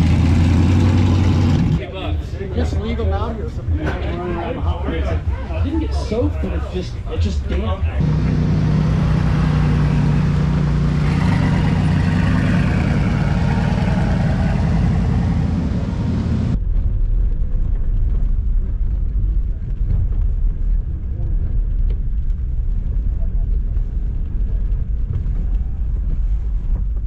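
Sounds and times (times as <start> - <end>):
vehicle engine humming: 0.0 - 27.0
vehicle driving over sand: 8.0 - 16.7.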